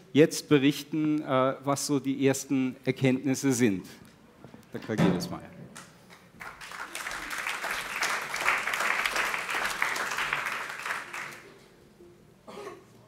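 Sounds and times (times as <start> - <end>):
audience applauding: 6.1 - 11.5.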